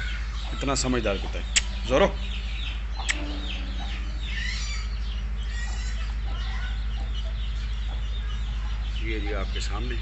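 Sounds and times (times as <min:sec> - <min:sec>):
chickens clucking: 0:00.0 - 0:10.0
chicks peeping: 0:00.0 - 0:10.0
low hum: 0:01.4 - 0:09.0
sharp click: 0:03.0 - 0:03.2.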